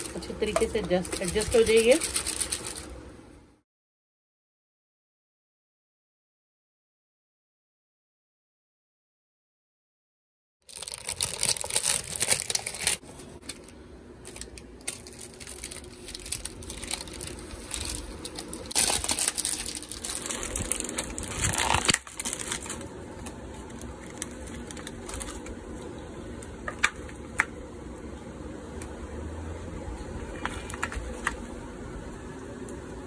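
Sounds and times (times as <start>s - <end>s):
plastic packaging crinkling: 0.0s - 2.9s, 10.7s - 25.8s.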